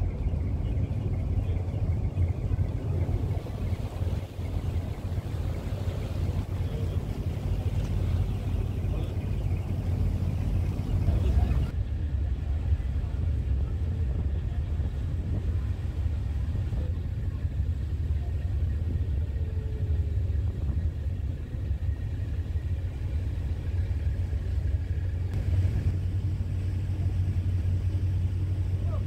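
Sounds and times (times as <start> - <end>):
boat engine rumble: 0.0 - 29.0.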